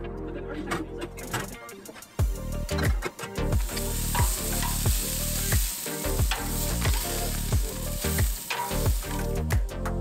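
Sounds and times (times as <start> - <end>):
electronic music with kick drum: 0.8 - 10.0
sausages sizzling on a grill: 2.2 - 9.8.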